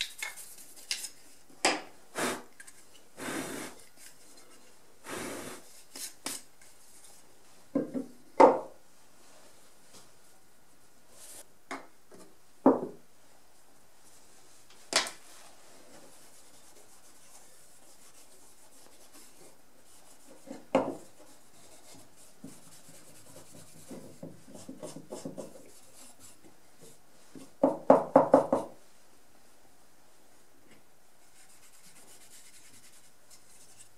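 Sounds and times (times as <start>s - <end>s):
wooden handle knocking on bench: 12.6s - 13.0s.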